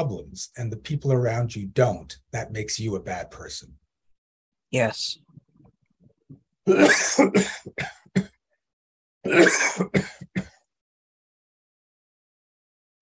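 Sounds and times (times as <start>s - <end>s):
man coughing: 6.7s - 8.4s, 9.3s - 10.6s.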